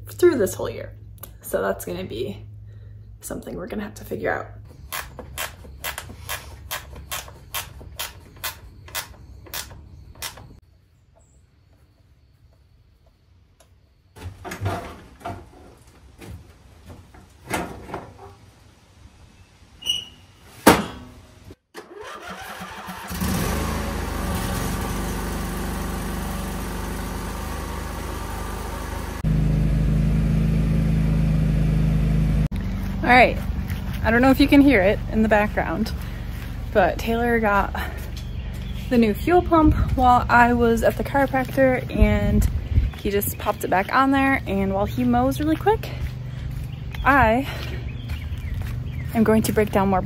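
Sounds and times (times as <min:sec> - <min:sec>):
lawn mower engine running: 0:21.8 - 0:43.6.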